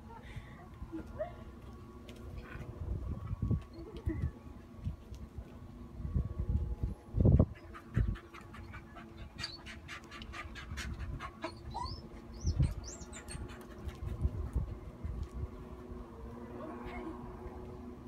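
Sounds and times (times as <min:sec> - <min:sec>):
dog panting: 0:07.3 - 0:15.4.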